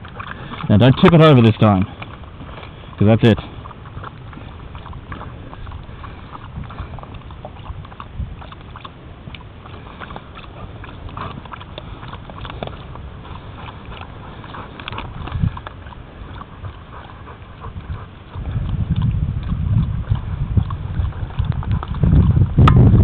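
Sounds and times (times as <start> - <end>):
dogs lapping water: 0.0 - 23.0.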